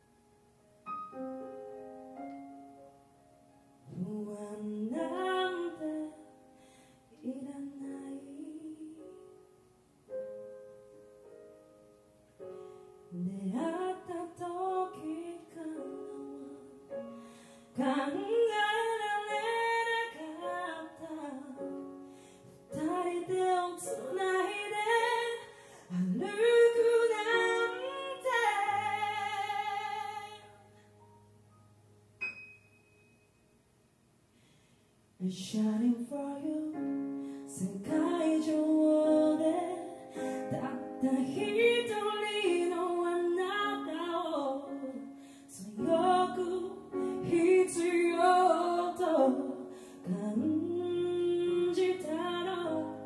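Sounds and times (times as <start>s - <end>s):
soft keyboard chords: 0.0s - 33.4s
woman singing a ballad: 3.8s - 9.4s, 13.1s - 30.7s, 35.2s - 53.0s.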